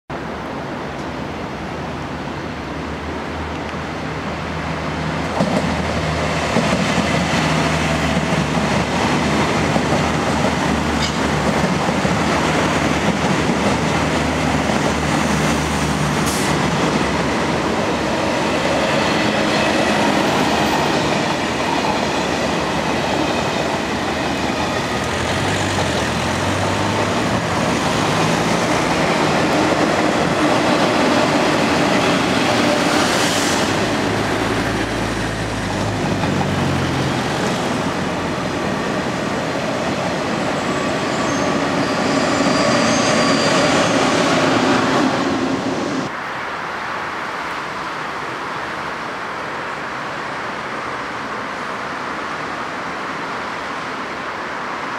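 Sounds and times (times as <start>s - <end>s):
train wheels rumbling on rails: 3.5s - 46.2s.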